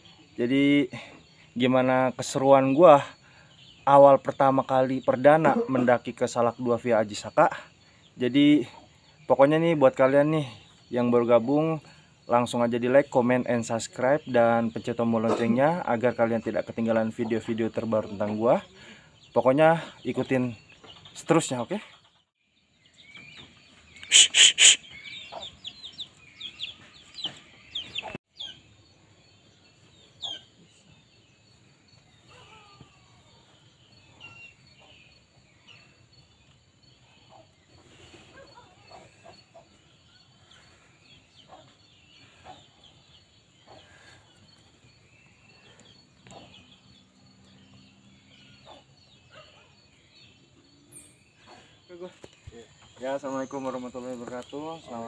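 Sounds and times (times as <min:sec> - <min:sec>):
birds calling: 0:00.0 - 0:55.0
faint bird chirps: 0:00.0 - 0:55.0
high insect whine: 0:23.9 - 0:25.3.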